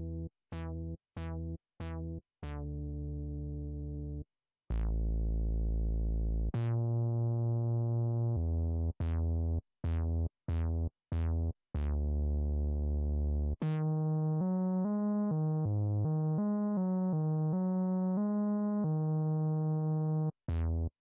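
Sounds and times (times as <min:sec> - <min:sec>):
synthesizer bass notes: 0:04.7 - 0:20.9.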